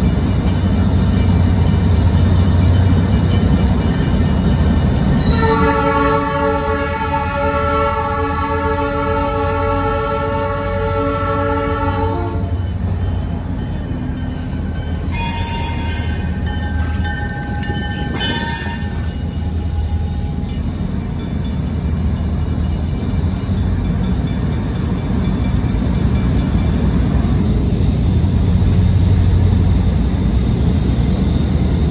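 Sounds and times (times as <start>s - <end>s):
locomotive engine low rumble: 0.0s - 31.9s
locomotive air horn: 5.2s - 12.7s, 15.1s - 16.4s, 18.1s - 19.2s.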